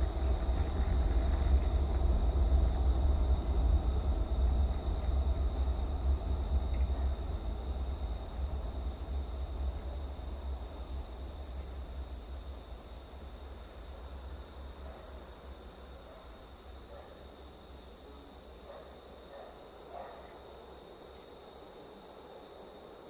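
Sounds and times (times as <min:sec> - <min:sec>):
low rumble: 0:00.0 - 0:14.3
crickets trilling: 0:00.0 - 0:23.0.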